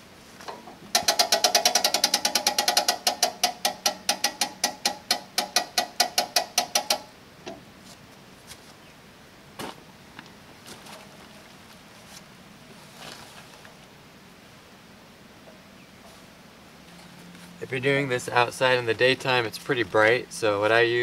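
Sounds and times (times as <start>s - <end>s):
ratchet clicking metallically: 0.9s - 7.2s.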